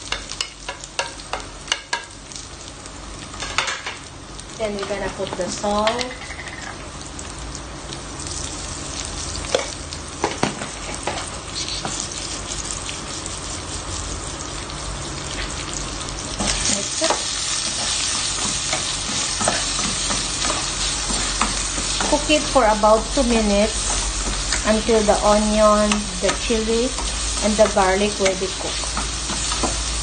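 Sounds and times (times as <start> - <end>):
onions sizzling in hot oil: 0.0 - 30.0.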